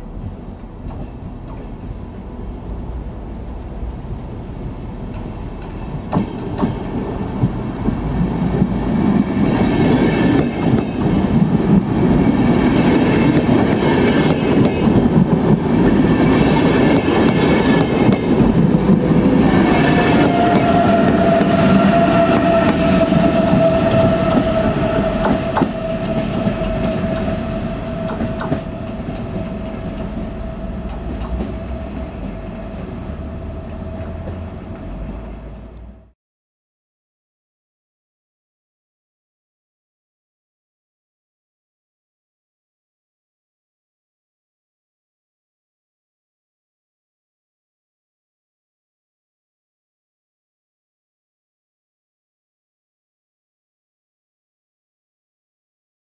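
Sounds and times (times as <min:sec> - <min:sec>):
train wheels rumbling and clattering: 0:00.0 - 0:36.1.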